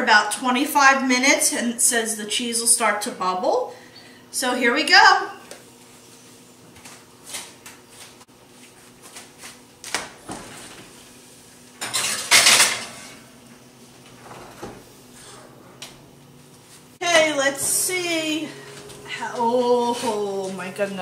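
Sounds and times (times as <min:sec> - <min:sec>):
glass dish scraping on oven rack: 0:11.8 - 0:13.3.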